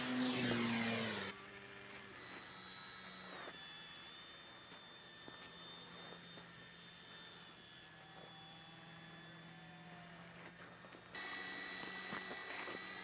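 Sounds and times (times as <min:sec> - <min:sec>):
model airplane motor drone: 0:00.0 - 0:13.0.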